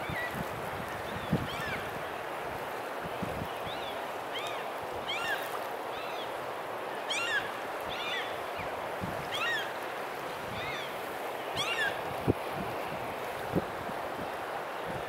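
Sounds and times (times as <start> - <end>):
wind and water rushing: 0.0 - 15.0
gulls calling: 7.0 - 9.8, 10.5 - 12.1.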